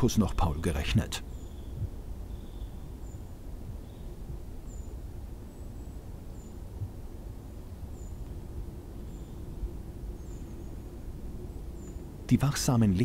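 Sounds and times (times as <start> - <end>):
low forest rumble: 0.0 - 13.0
small bird chirping: 1.2 - 6.9, 7.8 - 12.2.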